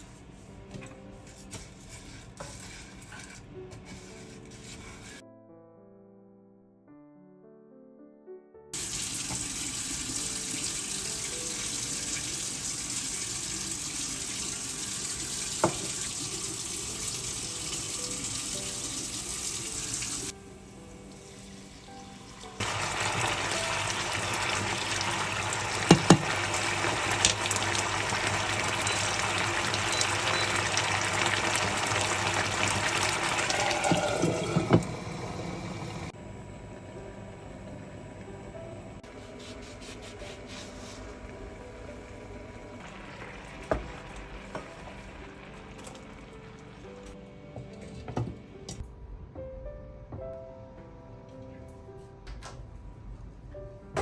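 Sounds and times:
rice sizzling in a pan: 8.8 - 20.3, 22.6 - 34.6
water hissing in hot pan: 8.8 - 20.3, 22.6 - 36.1, 42.8 - 46.2.

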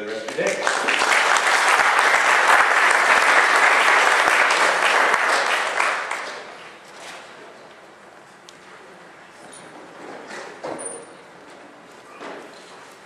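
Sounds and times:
audience applauding: 0.2 - 6.8.

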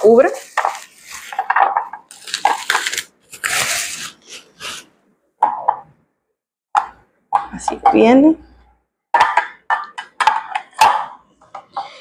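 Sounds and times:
plastic bags crinkling: 0.0 - 4.2.

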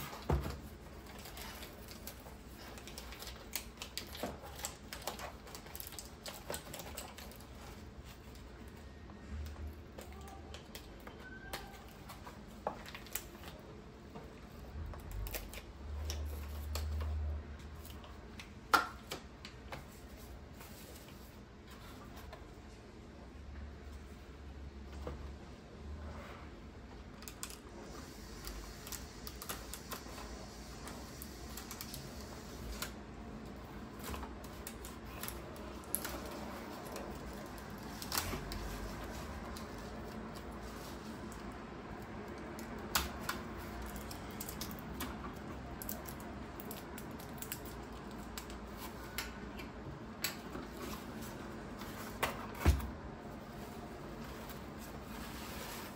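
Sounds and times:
plastic wrap and cardboard rustling: 0.0 - 23.0, 26.7 - 55.9
cardboard rustling: 33.8 - 42.0, 50.5 - 55.9.

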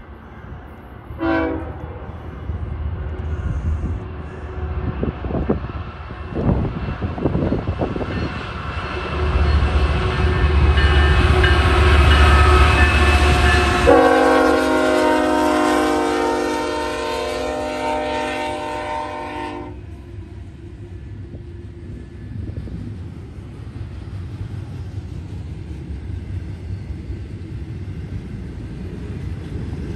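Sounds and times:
diesel locomotive engine rumbling: 0.0 - 29.9
train air horn: 1.2 - 2.1, 10.1 - 20.0.

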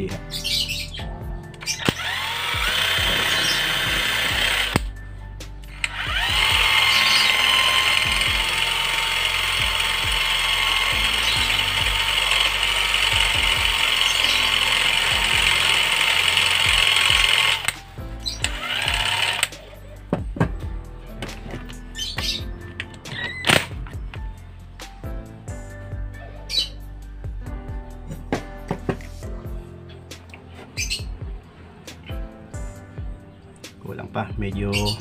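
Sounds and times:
part grinding against sanding disc: 1.6 - 4.8, 5.7 - 19.6
cordless drill whining: 1.6 - 5.0, 5.7 - 19.7.

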